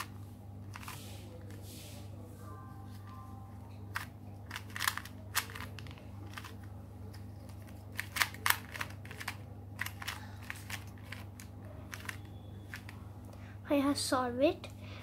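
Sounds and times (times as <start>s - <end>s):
puzzle cube clicking: 3.9s - 6.6s, 7.5s - 12.9s.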